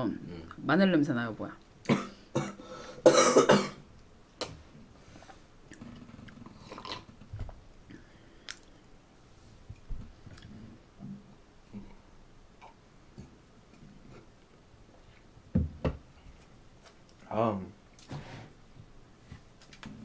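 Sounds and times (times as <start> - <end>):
person chewing food: 5.6 - 7.2, 7.9 - 8.8, 10.3 - 10.6.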